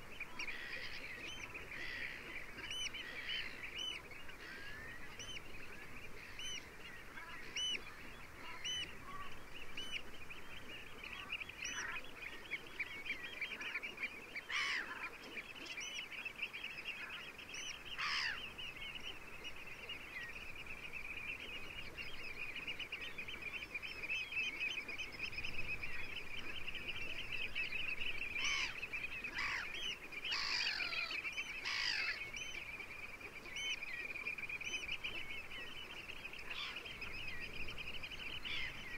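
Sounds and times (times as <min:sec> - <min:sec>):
falling bird calls: 0:00.0 - 0:38.9
flock of waterbirds chattering: 0:00.0 - 0:38.9.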